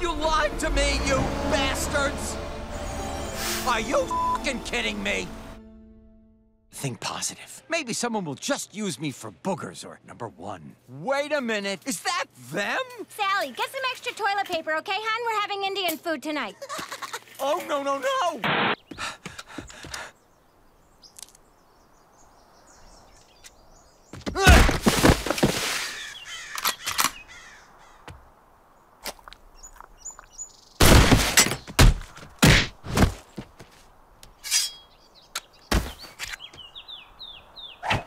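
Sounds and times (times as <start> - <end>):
short high chirps: 2.8 - 4.5
fight hits and thuds: 24.2 - 25.5, 30.8 - 33.6, 35.7 - 36.1.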